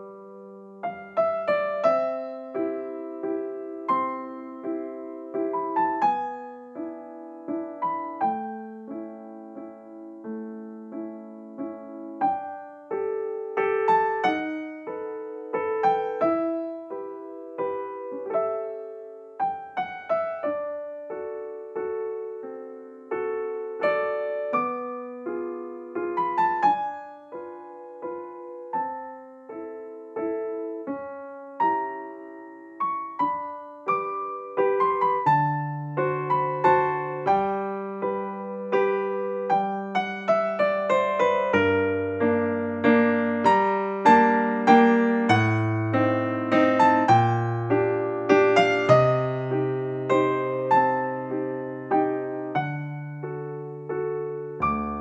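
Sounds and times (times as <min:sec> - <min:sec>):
gentle piano music: 0:00.0 - 0:55.0.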